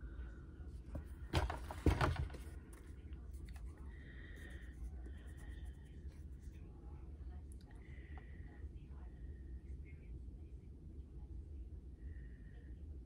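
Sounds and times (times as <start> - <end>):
low background hum: 0.0 - 13.0
cardboard rustle and scrape: 1.0 - 2.8.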